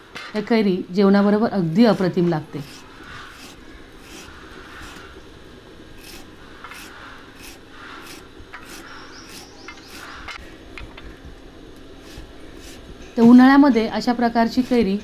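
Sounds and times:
blade slicing mango: 0:02.6 - 0:05.1, 0:06.0 - 0:10.2.

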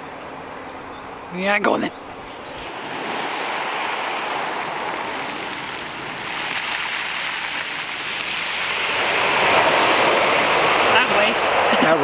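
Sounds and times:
waves breaking on shingle beach: 0:02.5 - 0:12.0.

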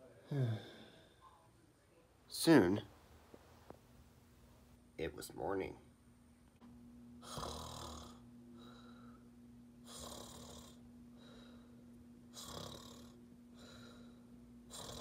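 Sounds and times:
faint steady hum: 0:00.0 - 0:15.0
person snoring: 0:07.2 - 0:08.8, 0:09.8 - 0:11.5, 0:12.3 - 0:15.0.

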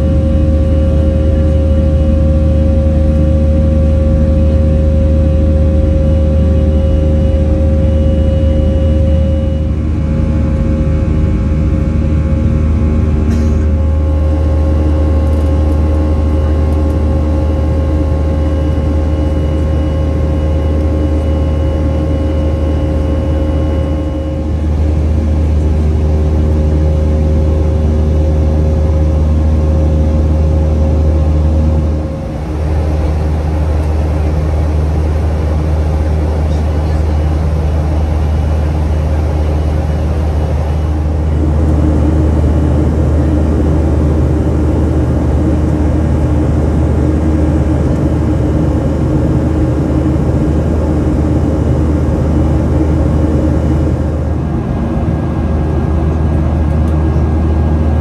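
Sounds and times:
airliner cabin engine rumble: 0:00.0 - 0:58.0.

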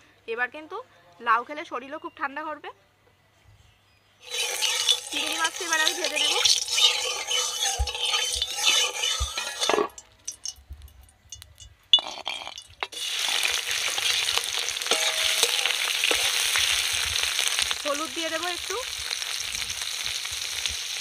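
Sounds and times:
oil sizzling in a pan: 0:04.2 - 0:10.4, 0:12.1 - 0:21.0
metal spatula scraping a pan: 0:04.2 - 0:10.6, 0:11.3 - 0:17.7
prawns frying in hot oil: 0:04.2 - 0:10.6, 0:11.3 - 0:21.0.

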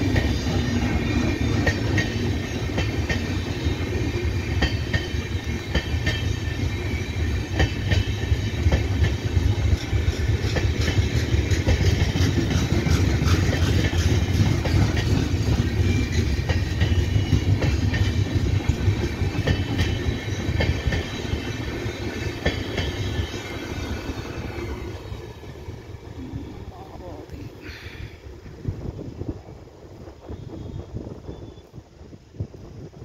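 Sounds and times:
train wheels rumbling on rail: 0:00.0 - 0:33.0
wheels clicking over rail joints: 0:07.5 - 0:25.7.

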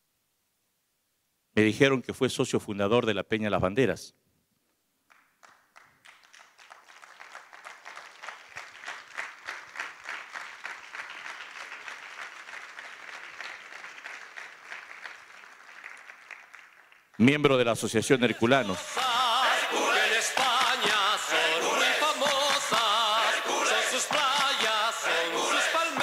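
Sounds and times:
audience applauding: 0:05.1 - 0:17.4, 0:18.4 - 0:26.0.

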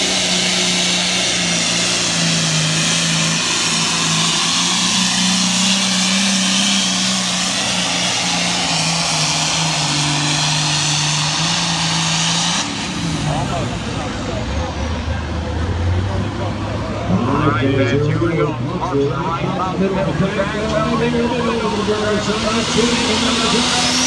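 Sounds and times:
tractor engine running hard: 0:00.0 - 0:24.0.

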